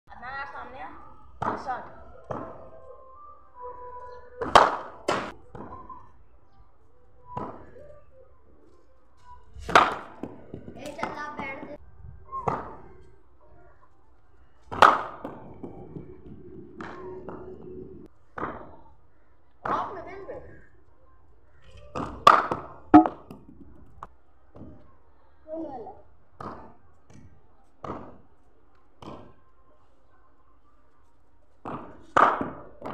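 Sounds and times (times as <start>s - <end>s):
wooden cricket bat hitting ball: 4.4s - 5.8s, 9.7s - 11.1s, 22.0s - 23.6s, 31.7s - 32.9s
cricket bat striking ball: 22.3s - 23.3s.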